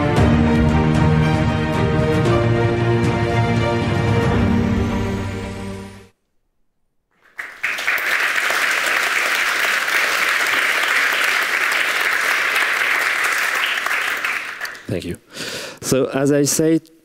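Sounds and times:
film music: 0.0 - 6.2
audience applauding: 7.2 - 15.0.

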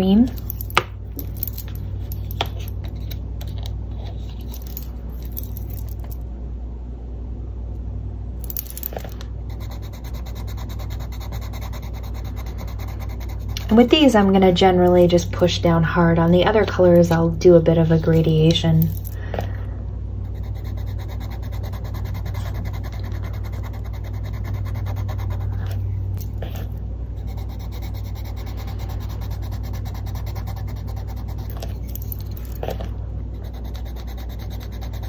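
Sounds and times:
low steady hum: 0.0 - 35.0
pencil scribbling on paper: 9.5 - 14.1, 20.3 - 25.8, 27.2 - 31.9, 33.3 - 35.0.

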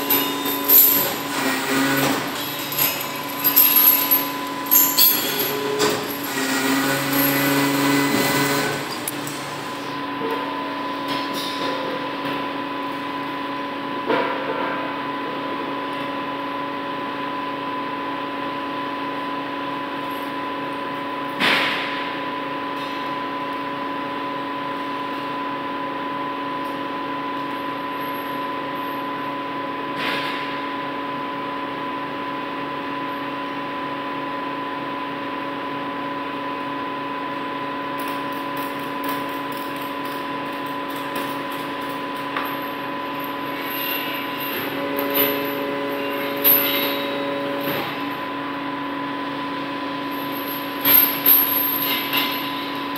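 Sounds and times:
chain rattles and knocks: 0.0 - 9.2, 50.2 - 52.9
chains clanking against steel: 0.0 - 9.5, 38.6 - 48.3, 50.1 - 52.9
steady machine hum: 0.0 - 14.1, 30.8 - 52.9.

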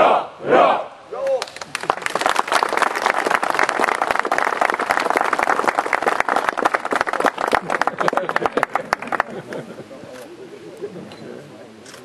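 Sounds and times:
crowd applauding: 1.4 - 9.6.

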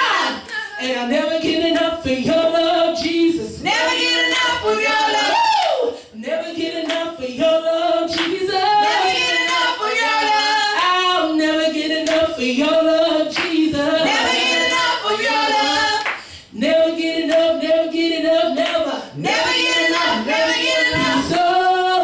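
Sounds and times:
women singing gospel song: 0.0 - 22.0
hand claps: 6.8 - 7.1, 8.1 - 8.4, 12.0 - 12.3, 16.0 - 16.3.

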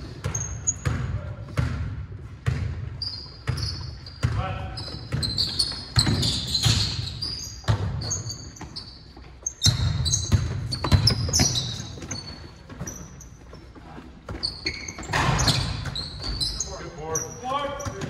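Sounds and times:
sneakers squeaking: 0.0 - 18.0
basketball bouncing on wood floor: 0.1 - 8.8, 9.6 - 13.6.

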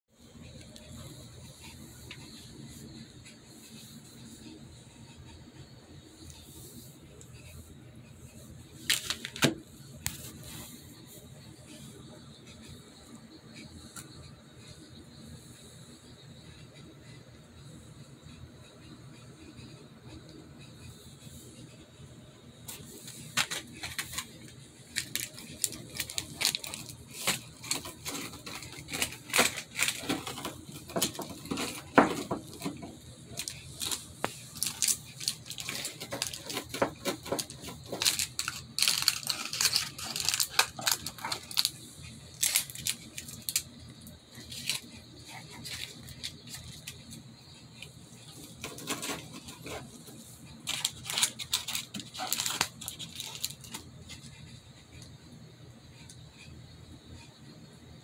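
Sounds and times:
foil crinkling: 8.8 - 10.8, 22.7 - 47.2, 48.3 - 54.3.

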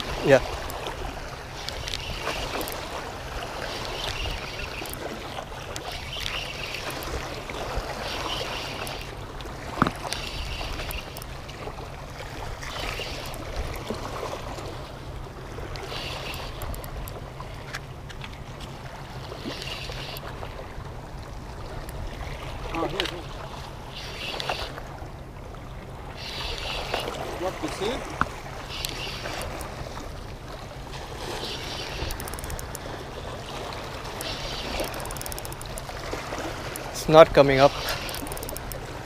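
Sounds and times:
water noise: 0.0 - 39.0
fishing reel cranking: 1.6 - 2.9, 3.6 - 5.2, 5.8 - 7.4, 8.0 - 9.2, 10.0 - 11.4, 12.7 - 13.5, 15.8 - 17.2, 19.4 - 20.3, 23.9 - 24.8, 28.6 - 29.8, 31.3 - 32.9, 34.1 - 36.0, 36.7 - 38.9
sharp click: 31.9 - 32.8, 34.2 - 35.8, 37.8 - 38.8.

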